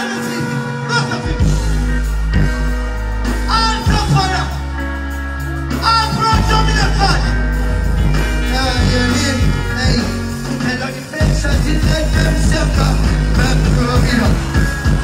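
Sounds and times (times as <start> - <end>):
heavy bass line: 0.0 - 15.0
man singing into microphone: 5.7 - 7.4, 8.4 - 15.0.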